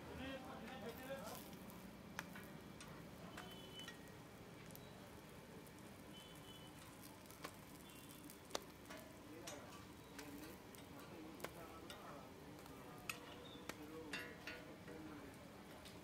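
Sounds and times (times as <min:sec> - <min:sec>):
bread sizzling on griddle: 0:00.7 - 0:02.6, 0:03.2 - 0:14.0.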